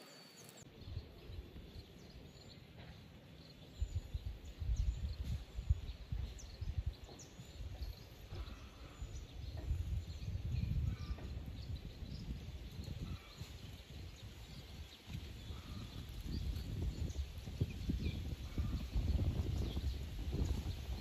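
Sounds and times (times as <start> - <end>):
faint high bird chirps: 0.0 - 13.6
wind buffeting microphone: 0.7 - 21.0.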